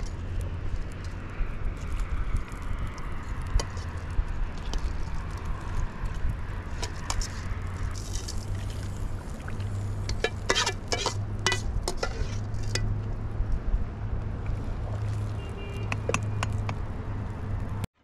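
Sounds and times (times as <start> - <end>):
metal spoon clinking on steel bowl: 10.1 - 12.9.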